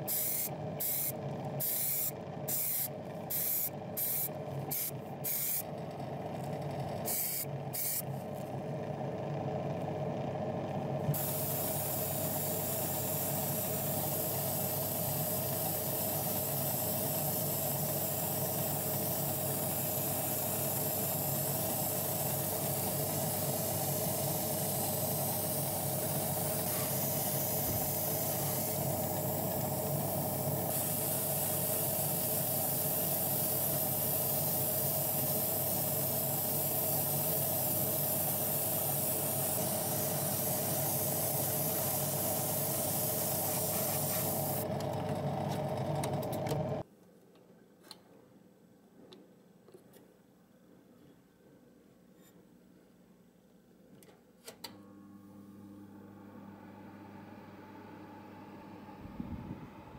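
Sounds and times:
airbrush spraying hiss: 0.0s - 5.6s, 7.1s - 8.0s, 11.2s - 44.6s
steady low hum: 57.8s - 59.9s.

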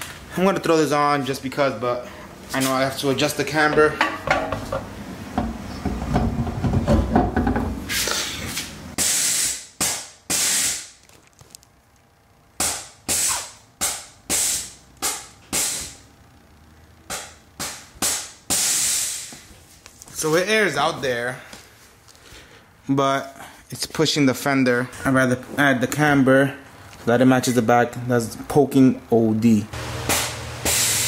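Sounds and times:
air suspension short hisses: 7.9s - 9.7s, 18.5s - 19.4s.

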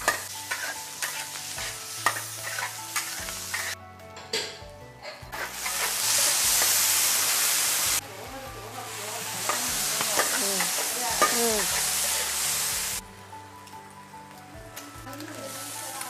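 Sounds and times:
meat sizzling in a wok: 0.0s - 3.8s, 5.2s - 16.0s
metal spatula scraping a pan: 0.0s - 3.8s, 5.1s - 7.4s, 9.4s - 12.4s.

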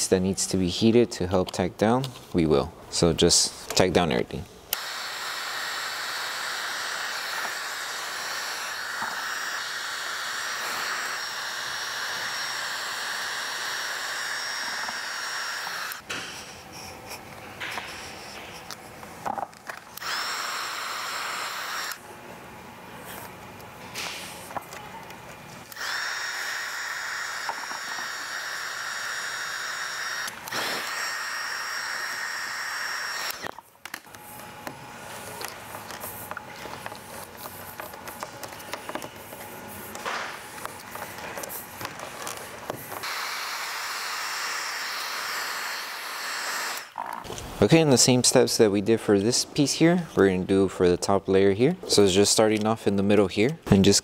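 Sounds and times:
heat gun blowing air: 4.7s - 16.5s, 19.9s - 22.0s, 25.6s - 33.6s, 41.6s - 47.0s.

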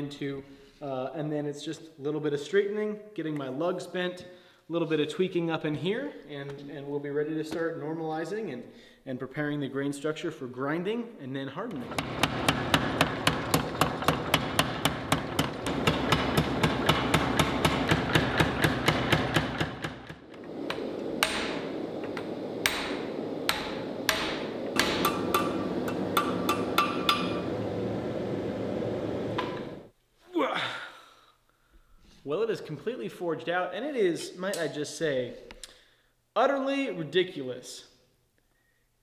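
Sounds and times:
hammer blows on hot steel: 11.8s - 28.0s
steady background hum: 11.8s - 30.6s.

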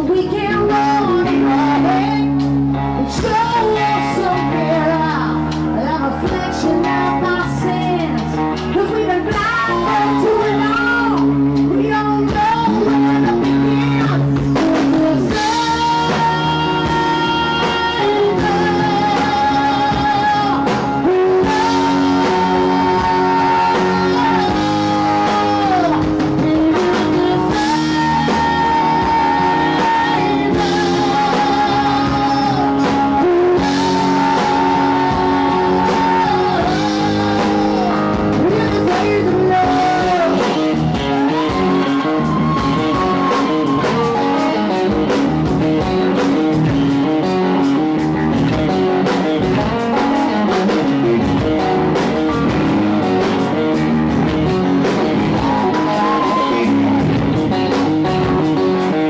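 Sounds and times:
live rock band playing: 0.0s - 59.0s
person singing: 0.0s - 59.0s.

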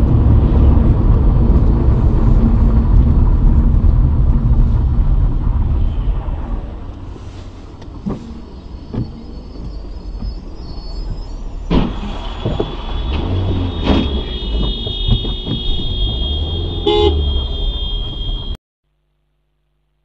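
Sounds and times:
engine and road rumble: 0.0s - 19.5s
car crash impacts: 11.7s - 18.5s
car horn: 12.4s - 18.6s.

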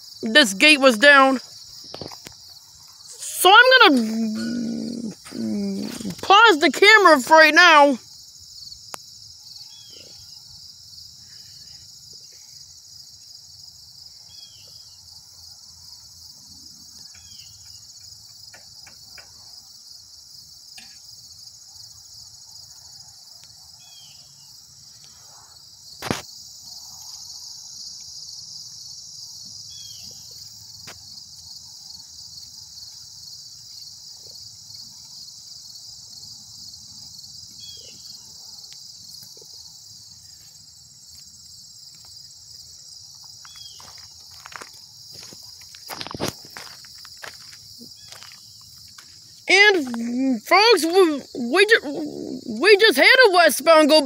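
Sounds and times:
insects chorus: 0.0s - 54.0s.

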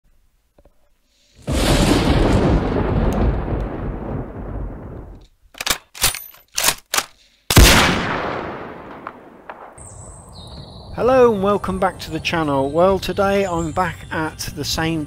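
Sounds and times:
deep booms: 1.5s - 5.2s
sharp gunshots: 6.0s - 9.8s.

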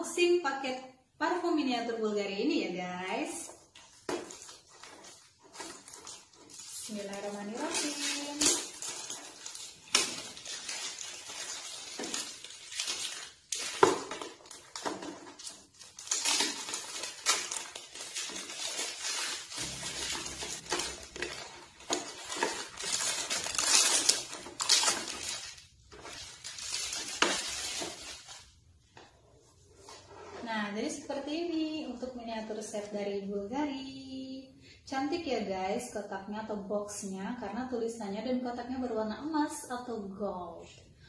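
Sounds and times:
wrapping and cardboard crinkling: 3.1s - 30.6s.

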